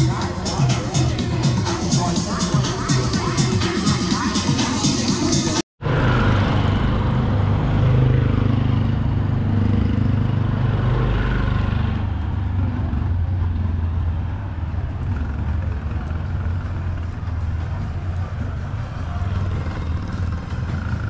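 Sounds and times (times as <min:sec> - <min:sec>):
road noise: 0:00.0 - 0:21.0
vehicle engine running: 0:05.8 - 0:21.0.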